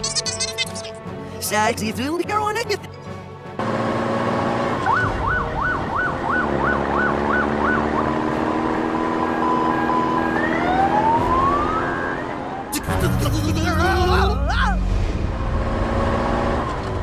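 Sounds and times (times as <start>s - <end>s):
engine hum revving: 3.4s - 17.0s
siren warbling: 4.8s - 8.3s, 8.9s - 12.8s.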